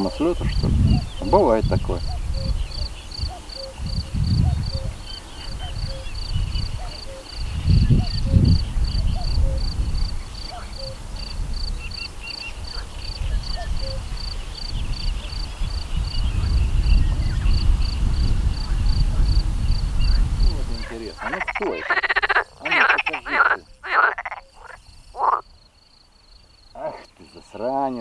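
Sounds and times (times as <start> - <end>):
insect chirping: 0.0 - 28.0
low rumble on microphone: 0.4 - 11.9, 12.6 - 20.9.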